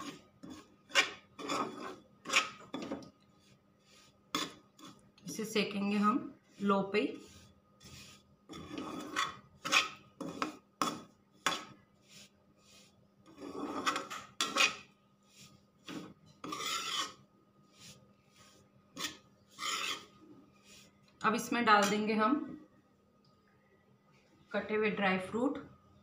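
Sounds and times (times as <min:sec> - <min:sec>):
metal spatula scraping a metal pan: 0:00.0 - 0:05.4, 0:06.4 - 0:20.9, 0:21.7 - 0:22.1.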